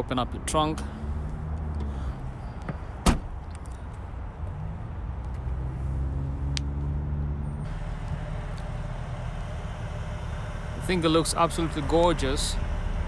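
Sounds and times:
car trunk latch clunk: 2.7s - 3.3s.

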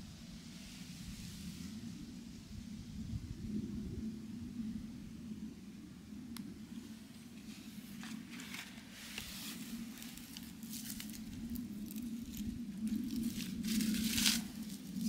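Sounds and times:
rustling and handling noises: 7.2s - 15.0s.

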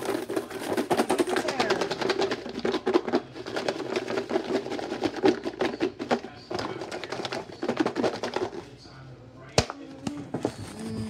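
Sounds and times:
candy rattling in plastic container: 0.0s - 8.7s.

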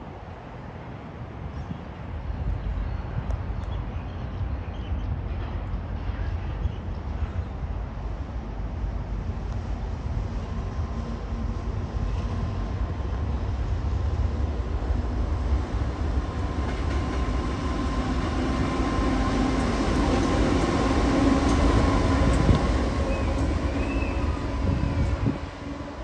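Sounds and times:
diesel locomotive engine rumble: 0.0s - 26.0s.

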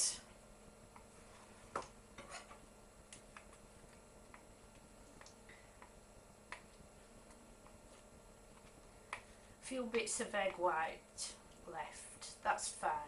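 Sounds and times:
spatula tapping mixing bowl: 5.2s - 6.8s.

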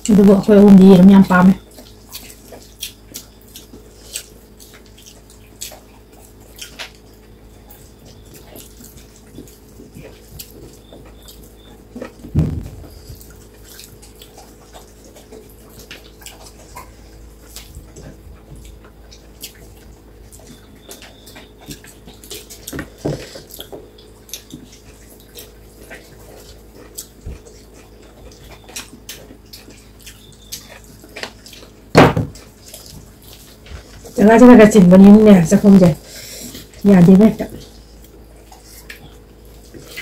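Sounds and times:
wet chewing: 0.0s - 40.0s
lip smacking: 18.6s - 31.8s.

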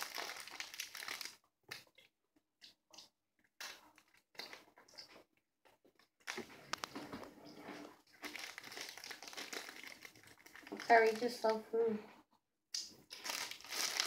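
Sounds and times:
snack wrapper rustling: 0.0s - 1.4s, 8.2s - 11.5s, 13.0s - 14.0s.

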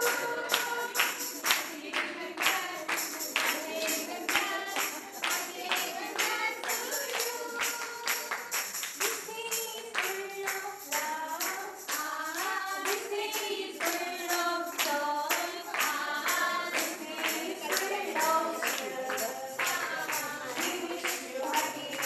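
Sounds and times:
person singing: 0.0s - 11.4s, 12.0s - 22.0s
steady percussion beat: 0.0s - 22.0s.

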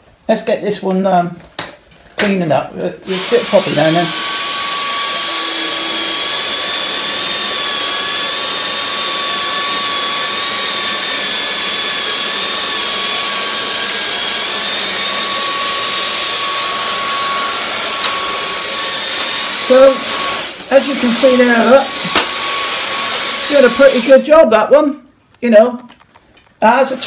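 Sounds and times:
stick vacuum running: 3.0s - 24.2s.

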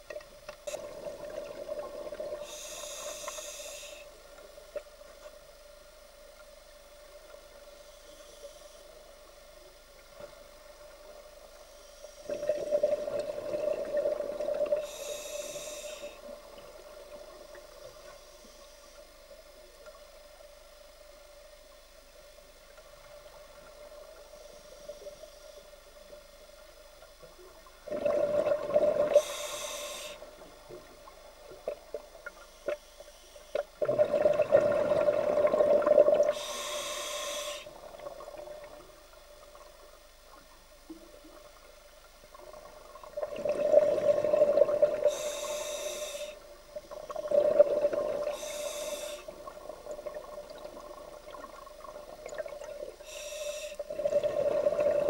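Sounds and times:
faint steady hum: 0.0s - 55.0s
underwater bubble bursts: 27.8s - 29.2s, 33.6s - 36.4s, 42.6s - 45.1s
short high hiss: 36.3s - 37.7s, 48.3s - 49.3s, 53.0s - 53.8s.

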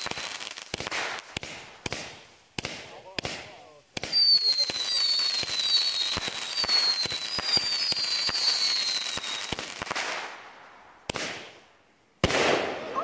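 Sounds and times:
firework pops with whistle: 4.0s - 10.2s.

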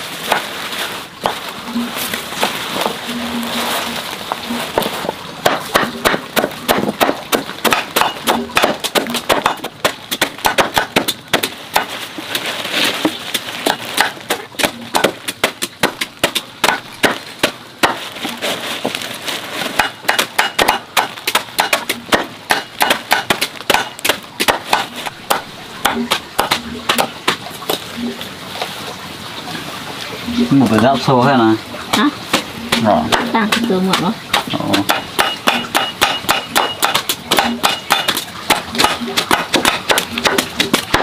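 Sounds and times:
blade chopping wood: 4.8s - 12.0s, 13.0s - 18.0s, 19.8s - 27.8s, 31.9s - 41.0s.

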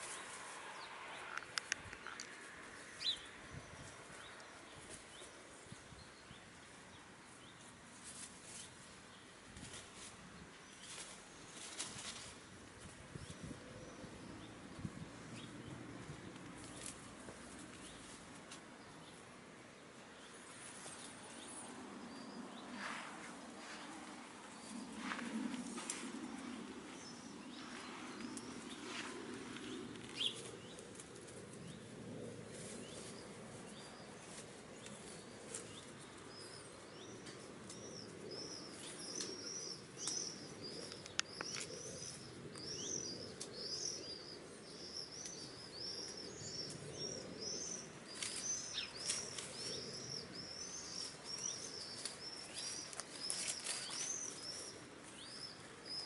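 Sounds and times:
songbird chirping: 0.0s - 56.0s
soft clicks and rustles: 1.2s - 2.7s.

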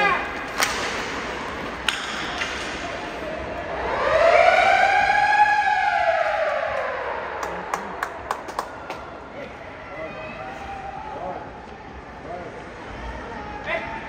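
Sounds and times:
sharp crack: 0.4s - 3.0s.

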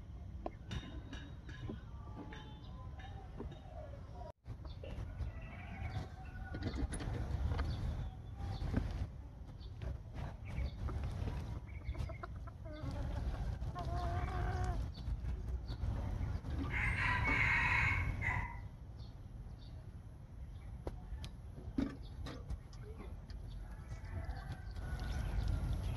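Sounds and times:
rooster crowing: 16.7s - 18.6s.

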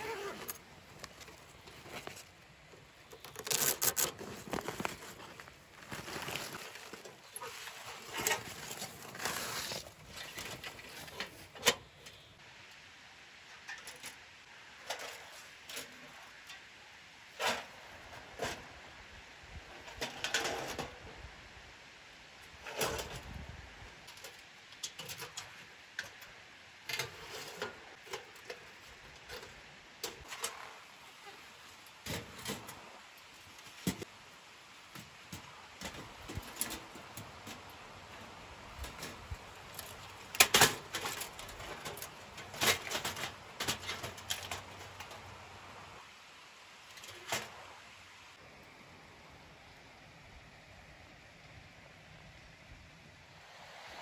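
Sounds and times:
metal panels clicking and clanking: 38.8s - 45.4s.

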